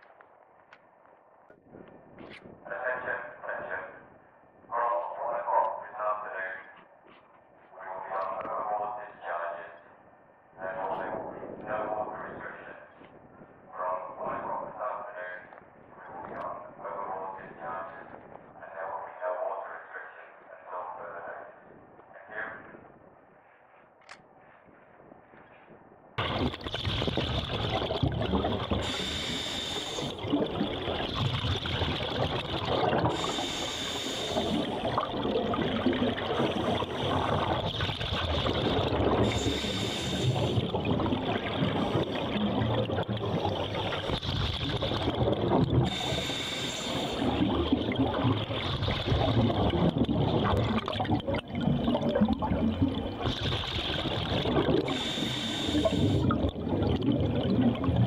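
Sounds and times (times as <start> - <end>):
underwater bubbles gurgling: 26.2 - 58.0
regulator breathing hiss: 28.8 - 30.2, 33.1 - 34.6, 39.2 - 40.6, 45.9 - 47.3, 54.9 - 56.3.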